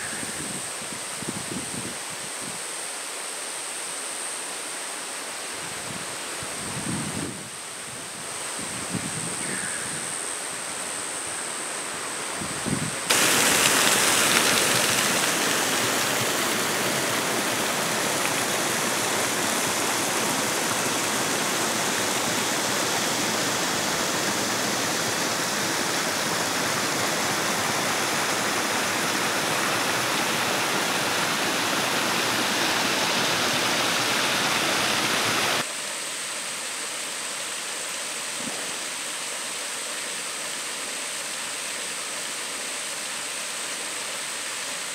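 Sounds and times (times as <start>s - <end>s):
waterfall rushing: 13.0s - 35.7s.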